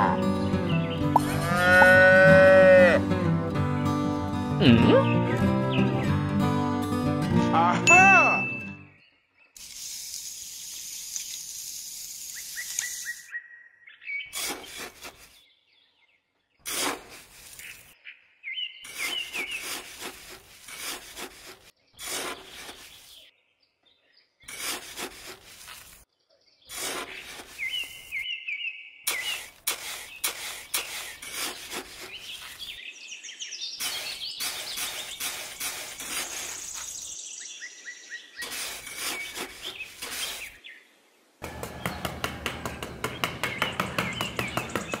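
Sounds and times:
birds chirping: 0.0 - 3.0, 12.3 - 16.7, 17.5 - 20.0, 21.8 - 25.3, 26.1 - 45.0
sharp clicks and taps: 41.4 - 45.0.

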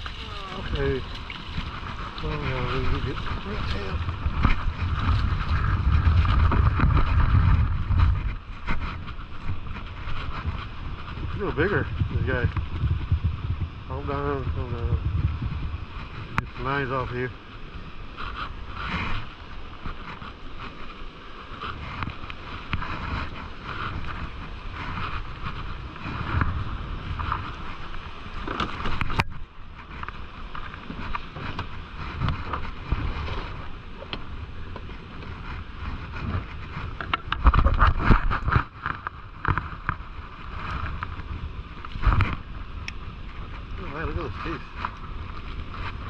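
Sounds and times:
low rumble: 0.0 - 20.0
surf washing: 0.0 - 46.0
wind buffeting microphone: 0.0 - 46.0.

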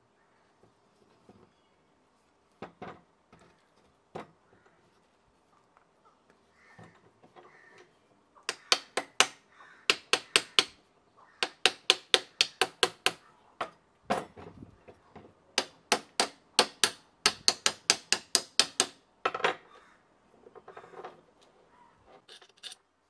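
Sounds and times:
screwdriver tapping metal casing: 11.4 - 13.8.

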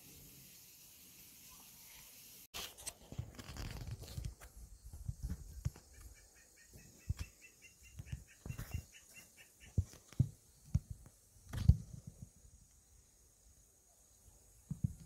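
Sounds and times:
bird chirping: 4.7 - 10.7.

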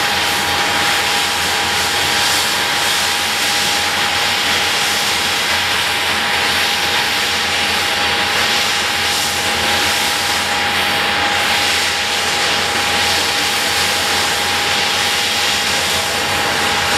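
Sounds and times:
jet engines running: 0.0 - 16.9.

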